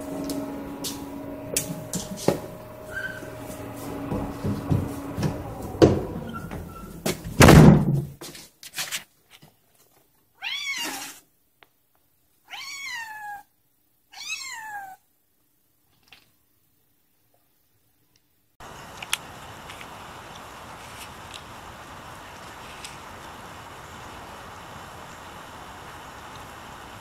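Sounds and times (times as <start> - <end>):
knocks and bumps: 0.0 - 8.2
loud thump: 0.7 - 8.2
cat meowing: 10.4 - 11.2, 12.5 - 13.5, 14.1 - 15.0.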